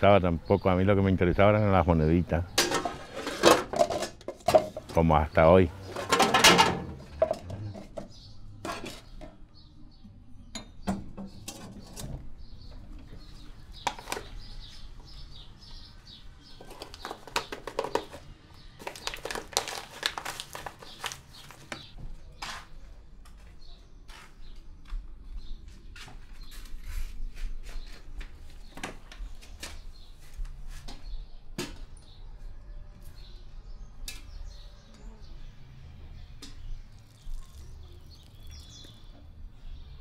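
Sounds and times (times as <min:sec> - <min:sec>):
small hard objects clinking: 0:18.8 - 0:21.9.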